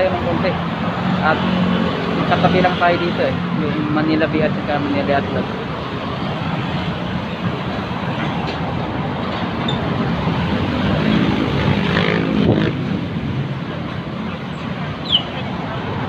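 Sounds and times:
road traffic passing: 0:00.0 - 0:16.0.

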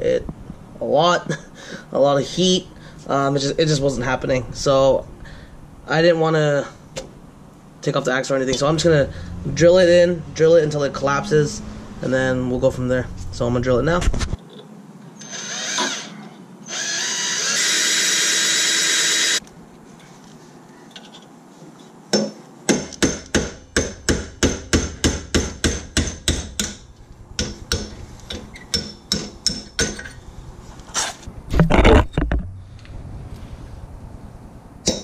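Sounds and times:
cordless drill drilling into bolt: 0:15.2 - 0:19.4.

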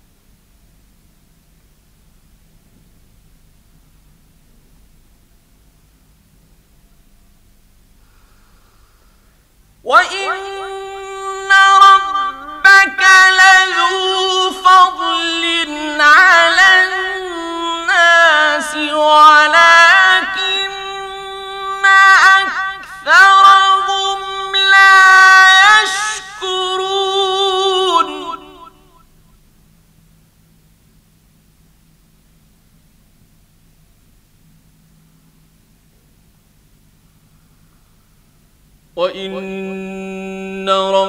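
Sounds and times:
man reciting melodically: 0:09.8 - 0:29.0, 0:38.9 - 0:41.0.

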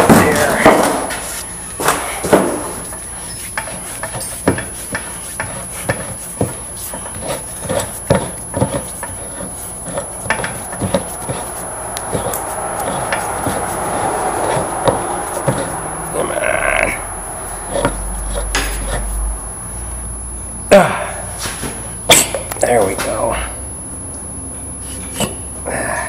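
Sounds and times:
metal scraping rub: 0:00.0 - 0:19.5.

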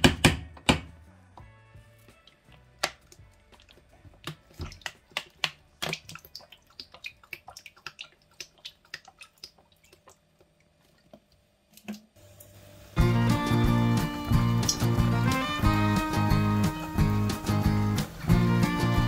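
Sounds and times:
loud background music: 0:13.0 - 0:19.0.

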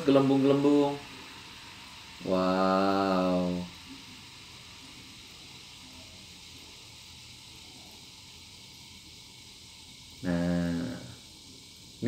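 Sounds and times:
faint fizzing hiss: 0:00.0 - 0:12.0
man speaking: 0:10.2 - 0:11.1.

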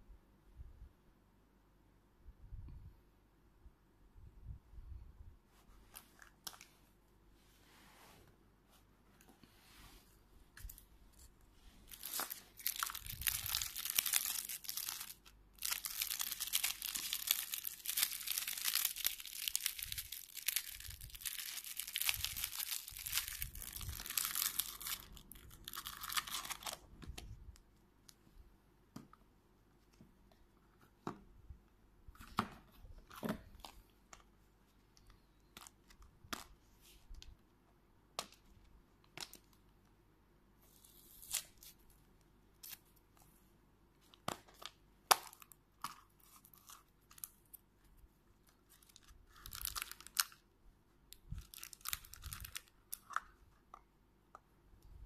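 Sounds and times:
plastic wrapping crinkling: 0:10.6 - 0:26.9, 0:48.5 - 0:50.4, 0:51.1 - 0:53.4.

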